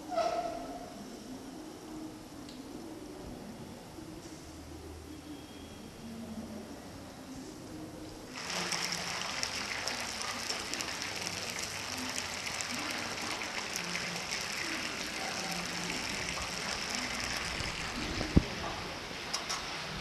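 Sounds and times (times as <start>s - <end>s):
chicken deep-frying in oil: 8.2s - 20.0s.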